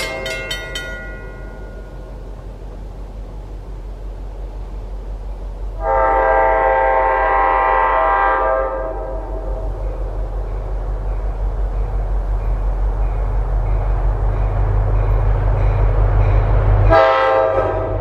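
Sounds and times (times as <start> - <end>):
train air horn blast: 5.8 - 9.7, 16.8 - 18.0.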